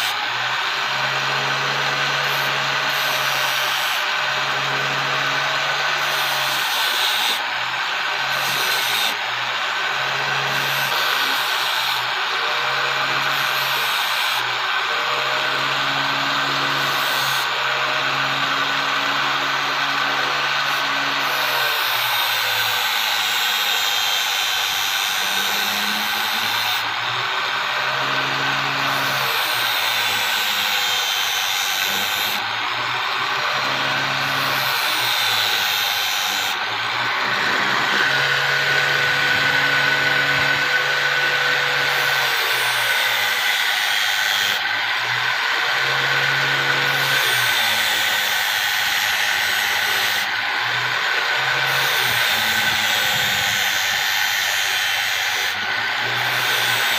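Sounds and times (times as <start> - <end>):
angle grinder grinding steel: 0.0 - 56.9.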